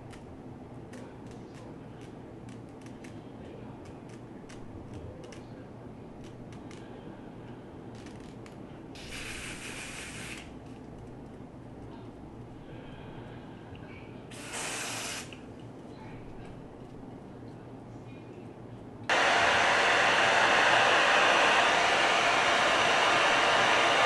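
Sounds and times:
aerosol can spraying: 9.0 - 10.5, 14.3 - 15.4.

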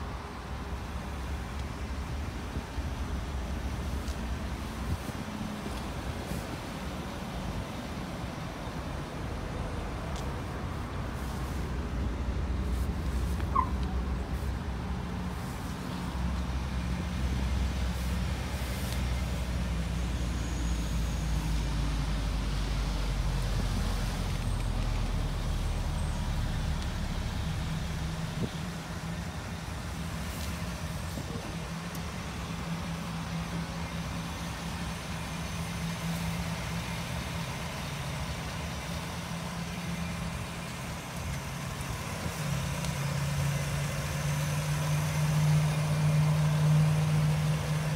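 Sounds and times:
truck engine idling: 0.0 - 47.9.

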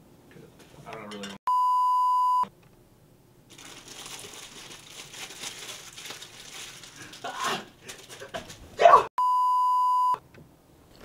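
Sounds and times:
test-tone beep: 1.5 - 2.5, 9.2 - 10.2
food wrapper crinkling: 3.5 - 8.7.

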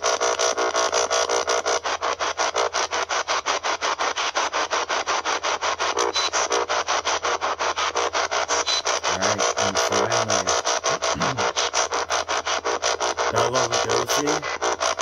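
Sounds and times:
radio static bursts: 0.0 - 15.0
low voice-like fragment: 9.1 - 11.6, 13.3 - 14.5.

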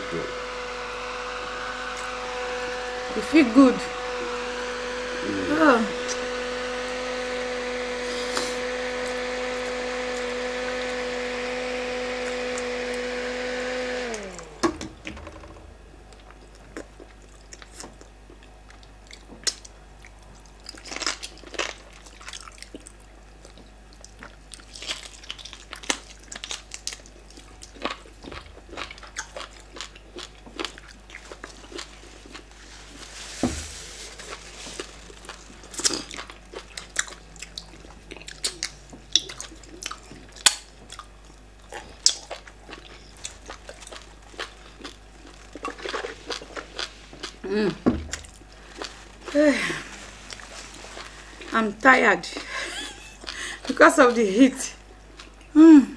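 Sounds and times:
electric fan whining: 0.0 - 16.8
wet chewing and lip smacks: 16.1 - 32.5, 35.1 - 47.4.

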